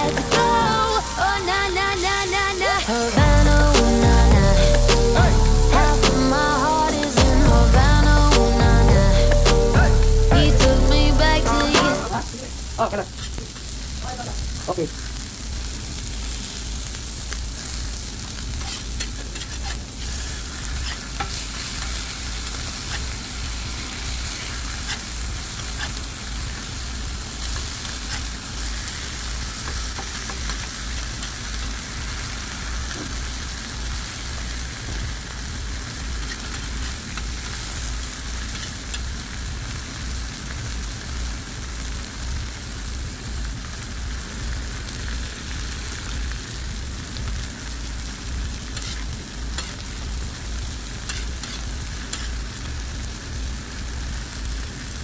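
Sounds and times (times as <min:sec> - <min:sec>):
fish sizzling on a griddle: 0:00.0 - 0:55.0
oil popping and crackling: 0:11.6 - 0:41.7.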